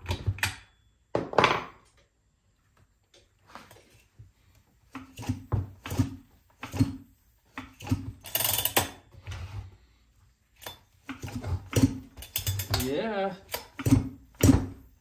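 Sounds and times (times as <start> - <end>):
mechanical ratcheting and clicking: 7.7 - 9.0.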